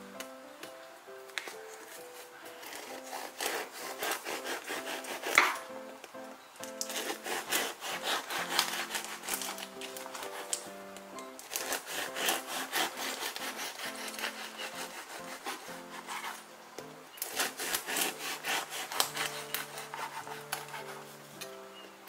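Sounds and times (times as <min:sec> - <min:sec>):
knife sawing through bread crust: 0:02.6 - 0:05.6, 0:06.8 - 0:10.6, 0:11.5 - 0:16.4, 0:17.2 - 0:21.2.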